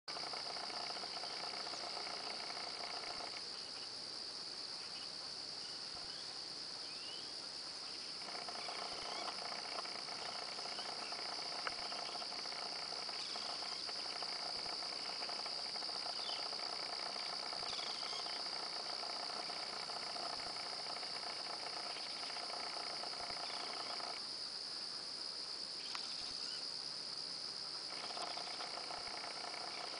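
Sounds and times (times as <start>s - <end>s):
high-pitched insect chorus: 0.1s - 29.9s
bird chirps: 7.9s - 20.4s.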